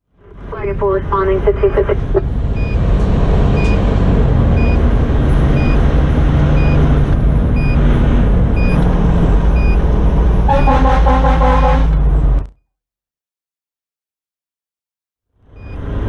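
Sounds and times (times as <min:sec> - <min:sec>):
diesel engine running: 0:00.2 - 0:12.5
truck air horn: 0:10.5 - 0:12.0.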